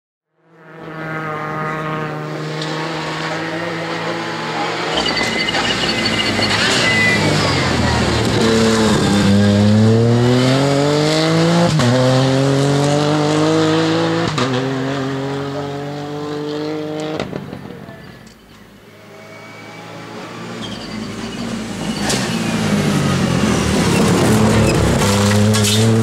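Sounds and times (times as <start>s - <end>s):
rally car engine accelerating: 0.6s - 18.0s, 18.9s - 26.0s
thin high whine: 4.6s - 8.1s.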